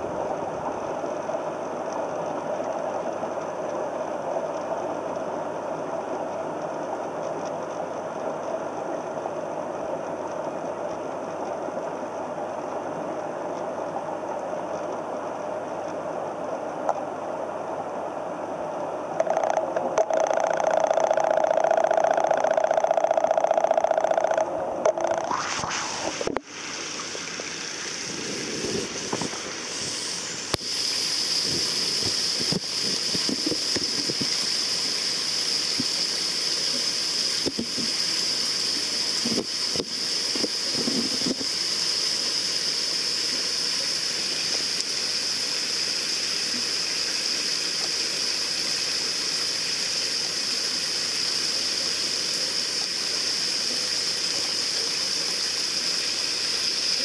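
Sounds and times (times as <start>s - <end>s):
low water gurgles: 0.0s - 57.0s
water splashing into pond: 19.2s - 42.5s.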